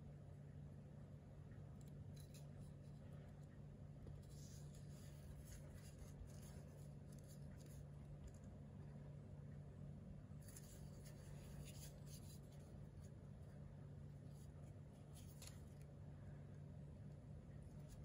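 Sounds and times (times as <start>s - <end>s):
steady low hum: 0.0s - 18.0s
hand rubbing on knife handle: 10.4s - 13.2s.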